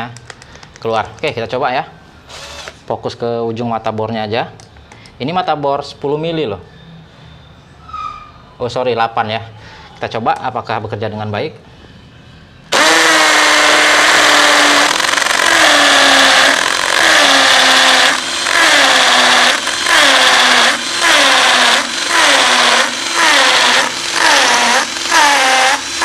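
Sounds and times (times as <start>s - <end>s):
hammer drill boring into masonry: 2.3s - 2.8s, 12.7s - 26.0s.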